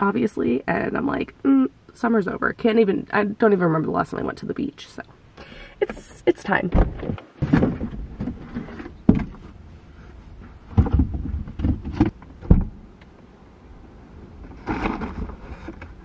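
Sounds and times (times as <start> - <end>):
rustling scrape: 7.4 - 12.1, 14.4 - 16.0.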